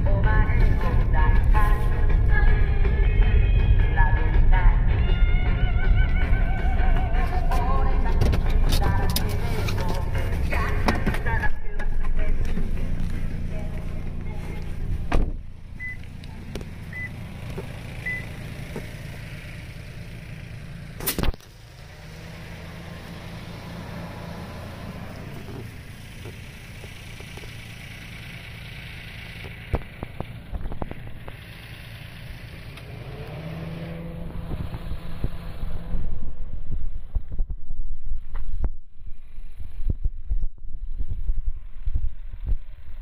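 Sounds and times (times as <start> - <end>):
car engine idling: 0.0 - 43.0
short electronic beeps: 18.0 - 18.4.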